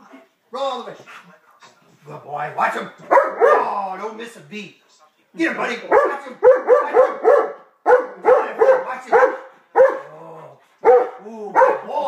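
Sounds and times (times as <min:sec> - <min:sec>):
dog barking: 0:03.1 - 0:03.8, 0:05.9 - 0:10.1, 0:10.8 - 0:12.0.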